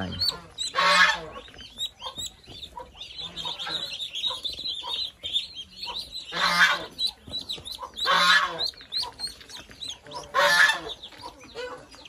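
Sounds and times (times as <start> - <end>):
harsh honking bird calls: 0.0 - 1.5, 6.2 - 7.0, 8.0 - 8.8, 10.1 - 11.8
ducklings peeping: 0.0 - 12.0.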